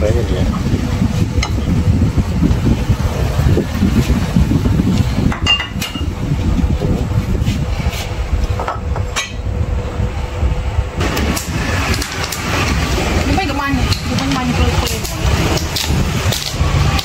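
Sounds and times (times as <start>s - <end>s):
wind buffeting microphone: 0.0s - 17.0s
tableware clinking: 5.3s - 6.1s.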